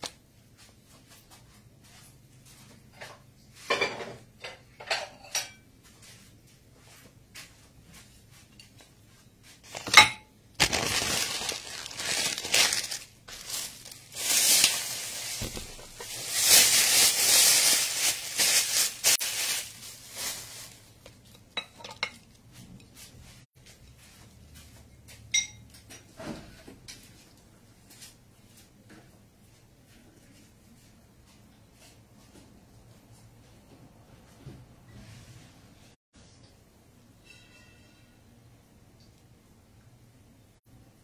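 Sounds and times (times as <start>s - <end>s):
crockery clinking: 3.7s - 5.6s, 25.3s - 26.1s, 37.2s - 38.4s
paper and plastic bag rustling: 9.6s - 10.0s, 10.6s - 21.2s.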